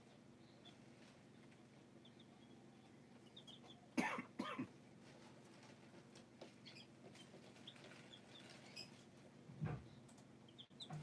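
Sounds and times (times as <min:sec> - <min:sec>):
chicks peeping: 0:00.0 - 0:04.0, 0:04.7 - 0:11.0
person coughing: 0:04.0 - 0:04.7.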